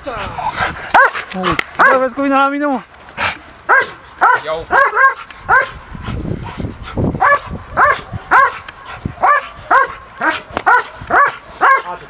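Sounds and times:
dog barking sharply: 1.0s - 2.0s, 3.7s - 5.8s, 7.2s - 11.9s.

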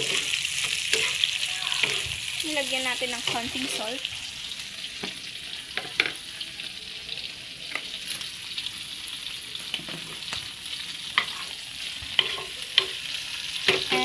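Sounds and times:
shrimp sizzling in a pan: 0.0s - 14.0s.

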